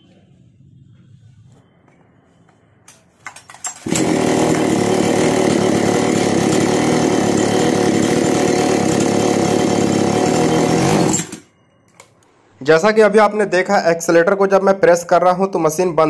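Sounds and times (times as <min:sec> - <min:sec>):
chainsaw engine running: 0:03.8 - 0:11.4.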